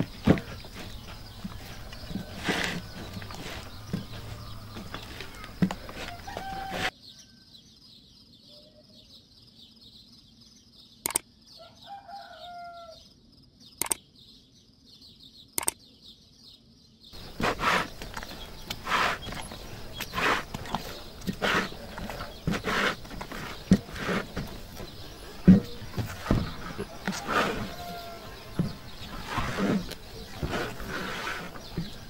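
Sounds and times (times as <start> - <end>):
chickens calling: 0.0 - 7.0, 17.2 - 32.0
sharp clicks: 11.0 - 11.3, 13.8 - 14.0, 15.6 - 15.8
dough kneading squelching: 17.2 - 32.0.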